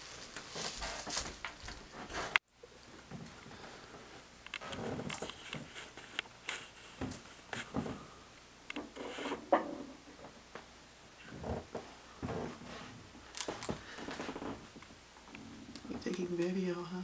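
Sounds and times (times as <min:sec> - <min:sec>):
cat rustling on couch: 0:00.0 - 0:02.4.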